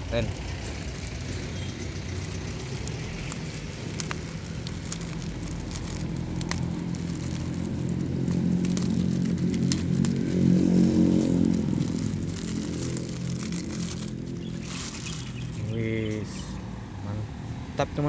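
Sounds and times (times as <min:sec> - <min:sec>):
plastic packaging crinkling and tearing: 0:00.6 - 0:16.6
low droning hum: 0:04.2 - 0:15.8.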